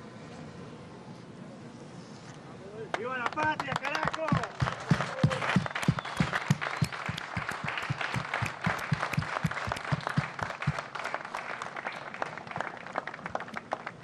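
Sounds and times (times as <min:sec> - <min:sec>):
people applauding: 0:02.9 - 0:14.0.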